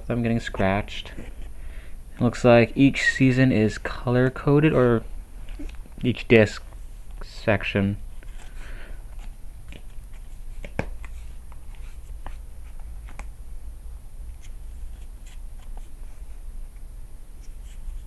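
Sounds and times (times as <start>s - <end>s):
cardboard pages turning: 8.2s - 13.3s, 14.4s - 16.2s.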